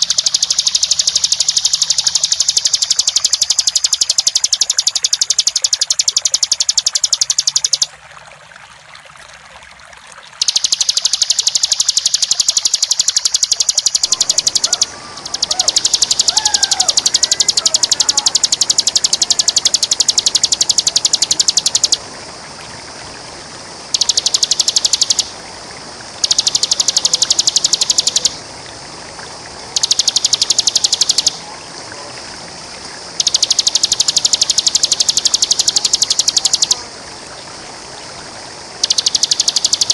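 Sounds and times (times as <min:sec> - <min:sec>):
bird singing buzzing trill: 0:00.0 - 0:07.9, 0:10.4 - 0:22.0, 0:23.9 - 0:25.3, 0:26.2 - 0:28.4, 0:29.8 - 0:31.4, 0:33.2 - 0:36.8, 0:38.8 - 0:39.9.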